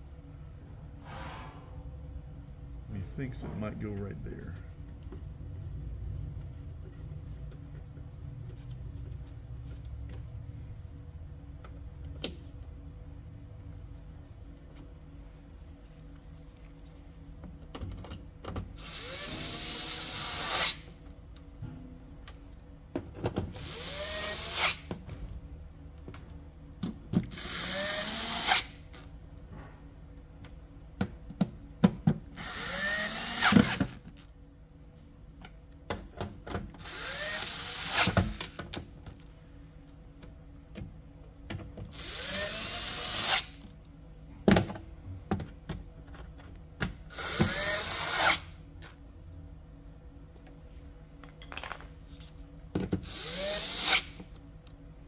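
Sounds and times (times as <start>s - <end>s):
cordless drill spinning: 18.8s - 20.9s, 23.6s - 24.9s, 27.3s - 28.8s, 32.4s - 33.8s, 36.8s - 38.6s, 42.0s - 43.5s, 47.1s - 48.4s, 53.0s - 54.2s.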